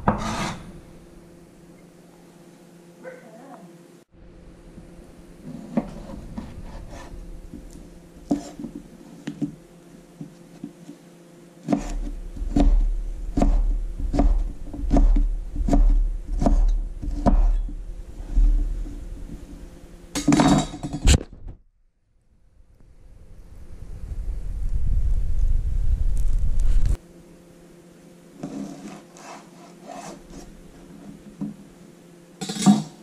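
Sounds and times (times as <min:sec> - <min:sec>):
knife slicing on wooden board: 0:11.6 - 0:17.6.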